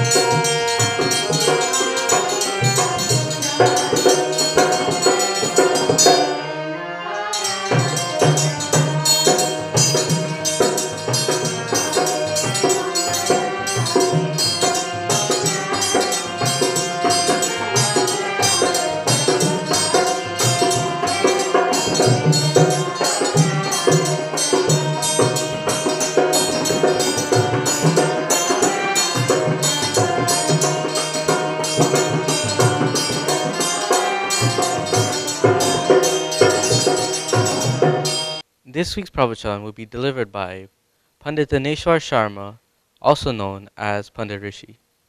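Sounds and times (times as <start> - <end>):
dholak drum beat: 0.0 - 6.4, 7.5 - 38.4
harmonium chords: 0.0 - 38.4
woman singing: 20.9 - 25.6.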